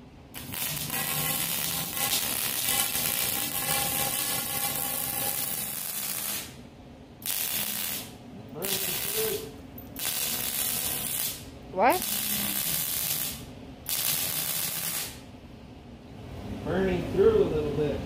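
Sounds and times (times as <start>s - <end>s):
welder arc crackling and hissing: 0.3s - 6.6s, 7.2s - 15.3s.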